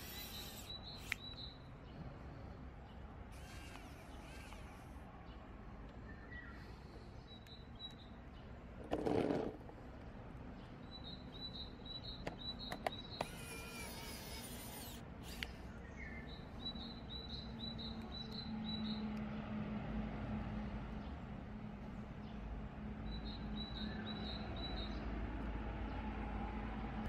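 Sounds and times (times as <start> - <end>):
small birds chirping: 0.0 - 19.6, 20.7 - 25.1
sharp light clicks: 0.7 - 1.5, 14.8 - 15.6.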